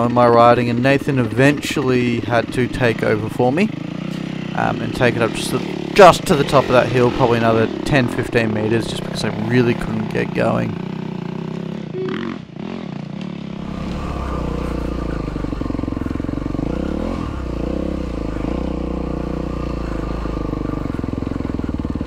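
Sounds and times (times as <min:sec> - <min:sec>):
dirt bike engine revving: 0:00.0 - 0:22.0.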